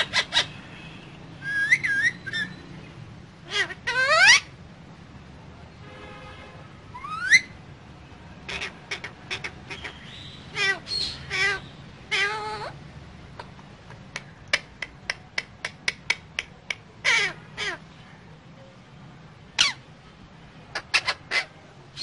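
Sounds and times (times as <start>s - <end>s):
parakeet squawks: 0.0s - 2.8s, 3.4s - 4.6s, 6.9s - 7.6s, 8.4s - 12.8s, 15.4s - 17.9s, 19.5s - 19.9s, 20.7s - 22.0s
parakeet sharp clicks: 13.4s - 16.9s.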